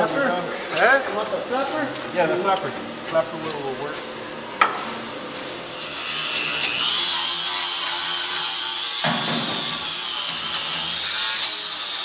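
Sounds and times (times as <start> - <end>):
angle grinder grinding sheet metal: 5.6 - 12.0.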